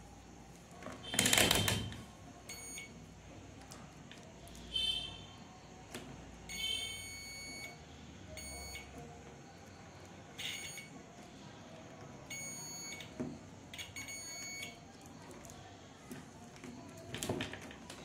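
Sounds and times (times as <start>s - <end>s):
multimeter continuity beeps: 1.1s - 3.1s, 4.7s - 11.3s, 12.2s - 15.5s.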